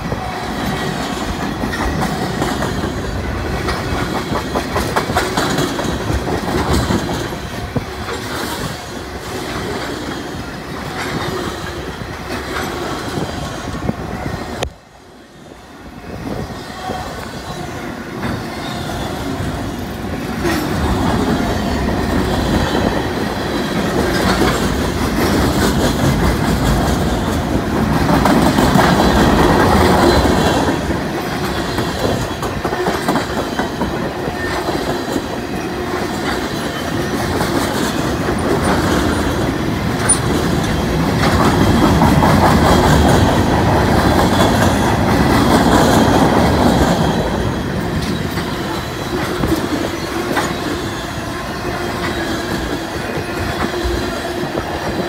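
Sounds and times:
train wheels clattering over rails: 0.0 - 14.7, 16.3 - 55.0.

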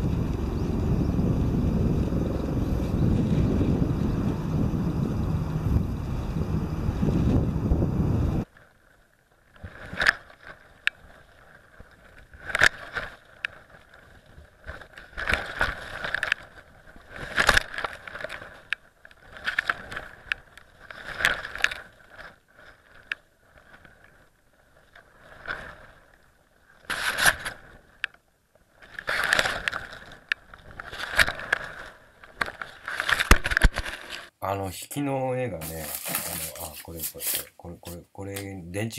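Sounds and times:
wind buffeting camera: 0.0 - 8.5.

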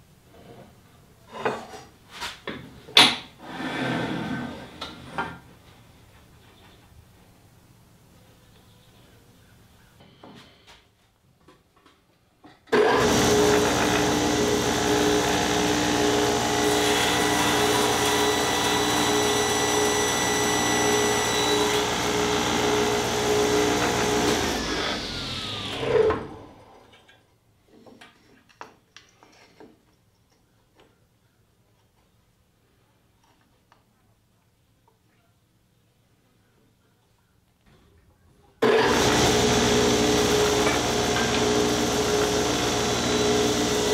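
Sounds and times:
saw blade winding down: 12.8 - 26.6, 38.6 - 43.9
table saw whining: 12.8 - 26.6, 38.6 - 43.9.

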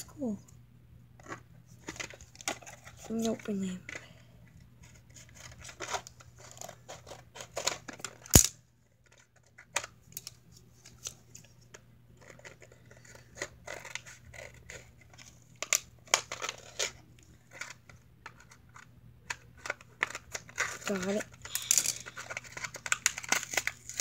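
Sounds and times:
plastic crinkling: 19.3 - 24.0
scissors cutting plastic packaging: 19.6 - 24.0.

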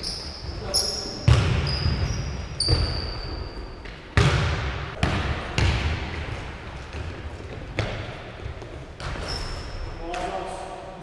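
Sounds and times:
sneaker squeaking on floor: 0.0 - 4.4, 8.6 - 10.1
basketball bouncing on hardwood: 1.3 - 3.0, 4.2 - 6.2.

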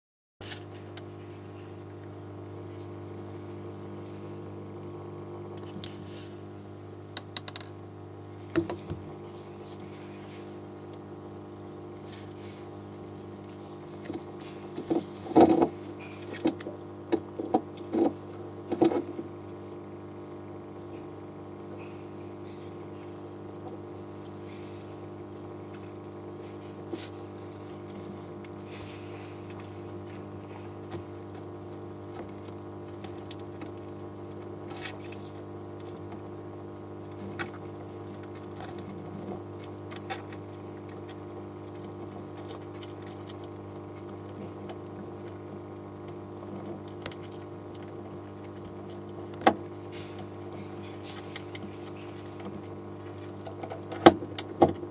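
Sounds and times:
crab shells clicking together: 7.2 - 7.8.

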